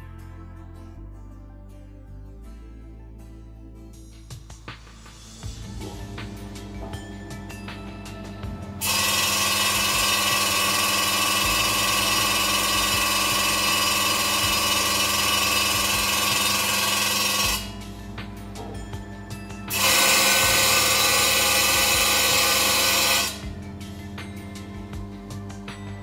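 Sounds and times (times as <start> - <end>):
low hum: 5.2 - 8.9.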